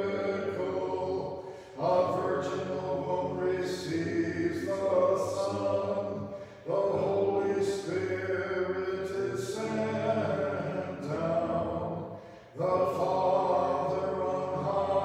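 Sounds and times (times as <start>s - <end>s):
unaccompanied liturgical chant: 0.0s - 15.0s
singer breathing: 1.3s - 1.8s, 6.2s - 6.7s, 12.0s - 12.6s.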